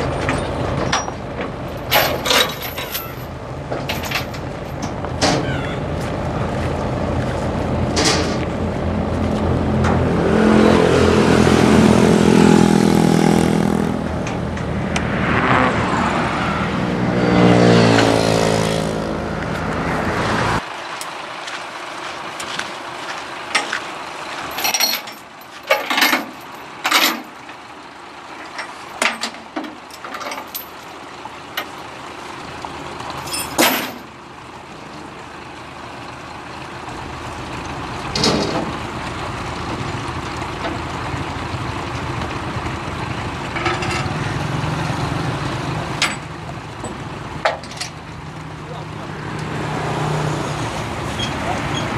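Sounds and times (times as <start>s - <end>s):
combine harvester engine revving: 0.0s - 51.9s
sharp metal clanks and knocks: 0.2s - 5.5s, 24.5s - 27.4s, 28.4s - 30.8s, 33.2s - 34.1s, 38.1s - 38.8s, 43.5s - 44.1s, 46.0s - 48.0s.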